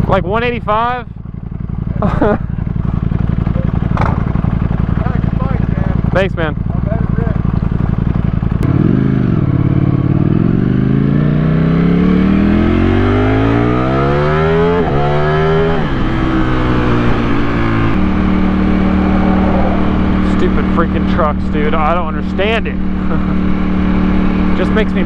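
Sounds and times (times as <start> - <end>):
motorcycle engine accelerating: 0.0 - 25.0.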